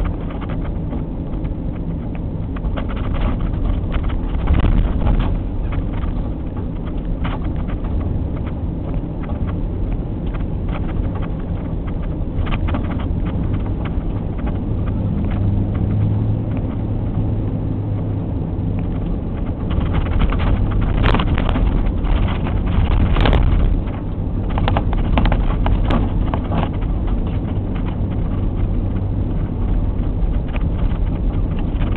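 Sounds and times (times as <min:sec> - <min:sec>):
engine and tyre rumble: 0:00.0 - 0:31.9
knocks and rattles: 0:18.8 - 0:31.9.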